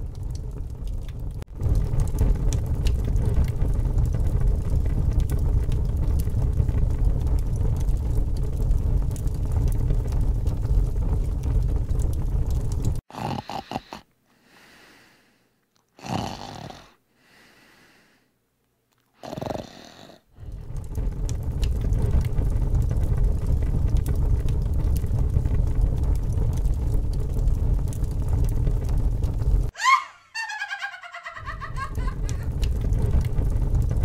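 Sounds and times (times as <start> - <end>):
fire crackling and rushing: 0.0 - 13.1, 20.3 - 29.8, 31.2 - 34.0
person snoring: 13.1 - 14.8, 16.0 - 17.5, 19.2 - 20.3.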